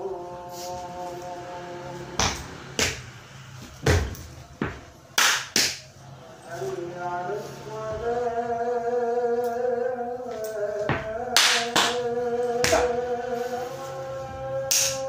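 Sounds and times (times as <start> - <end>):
hand slaps: 2.2 - 3.0, 5.2 - 5.9, 11.4 - 12.0, 12.6 - 12.9, 14.7 - 15.0.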